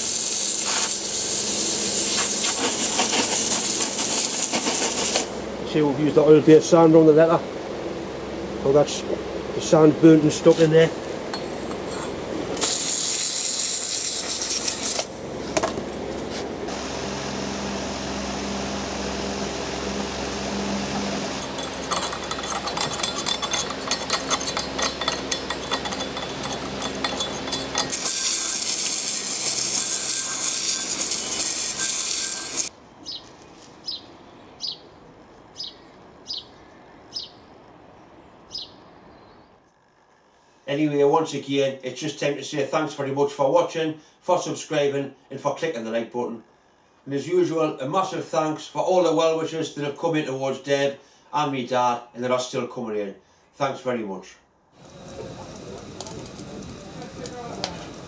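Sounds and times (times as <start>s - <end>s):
hose nozzle spraying water: 0.0s - 5.4s, 12.6s - 15.2s, 21.3s - 32.7s
scraping on metal castings: 11.3s - 15.1s, 21.3s - 32.7s.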